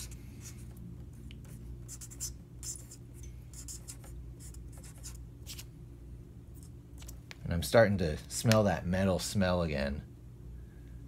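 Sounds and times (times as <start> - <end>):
steady low hum: 0.0 - 11.0
pen scratching on paper: 1.4 - 5.6.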